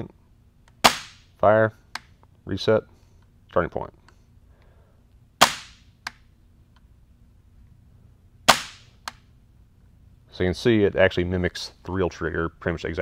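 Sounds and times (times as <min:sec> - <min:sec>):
airsoft gun air pop: 0:00.8 - 0:01.2, 0:05.4 - 0:06.2.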